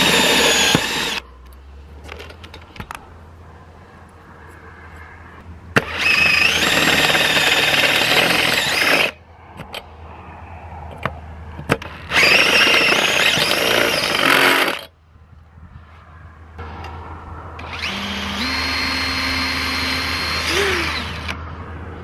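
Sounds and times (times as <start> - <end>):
cordless drill whining through metal: 0.0 - 1.2, 5.8 - 9.2, 11.8 - 14.9, 17.6 - 21.4.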